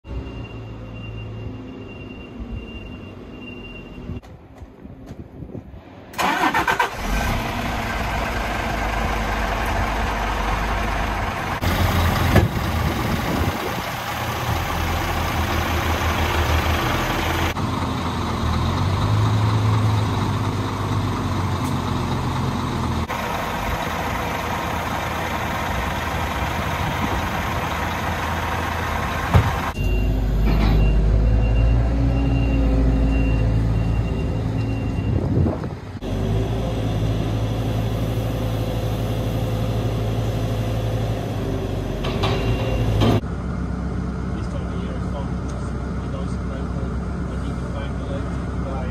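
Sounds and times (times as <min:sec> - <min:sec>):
reversing beeper beeps: 0:00.2 - 0:04.2, 0:29.8 - 0:35.2
truck diesel engine running: 0:06.2 - 0:31.5, 0:35.6 - 0:48.9.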